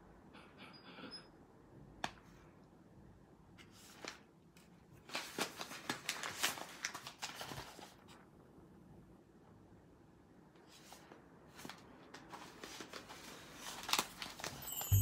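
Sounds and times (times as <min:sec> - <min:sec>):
paper bags crinkling: 0:05.0 - 0:08.0, 0:12.3 - 0:15.0.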